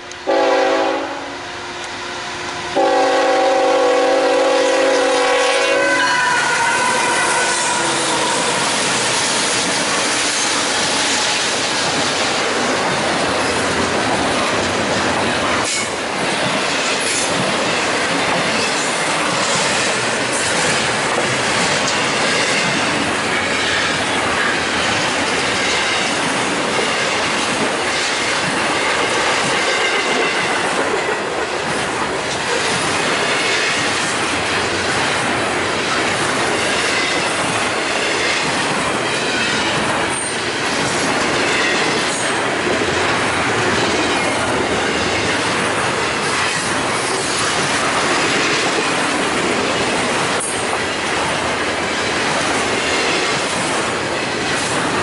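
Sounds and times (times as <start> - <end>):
train wheels on rails: 0.0 - 55.0
locomotive air horn: 0.1 - 9.0.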